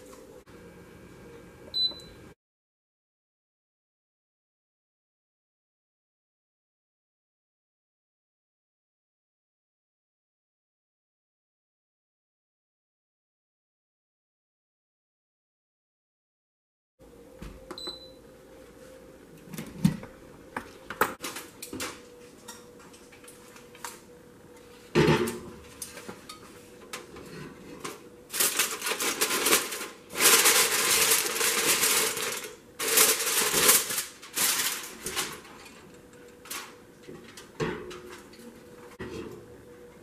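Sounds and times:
aluminium foil crinkling: 0:27.8 - 0:38.7.

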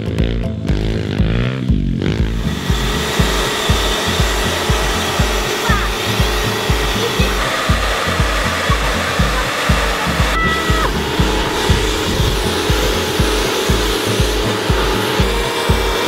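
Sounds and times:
background music with beat: 0:00.0 - 0:16.0
pressure washer spraying: 0:02.1 - 0:16.0.

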